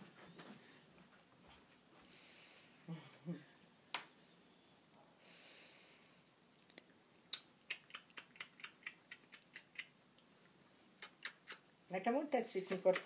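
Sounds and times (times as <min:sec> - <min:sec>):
soft quick mouth smacks: 0:06.6 - 0:09.9, 0:11.0 - 0:11.7.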